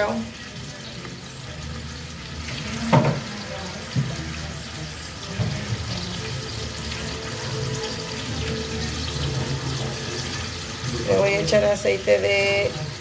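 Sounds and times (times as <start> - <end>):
kitchenware knocking and clinking: 2.8 - 3.3.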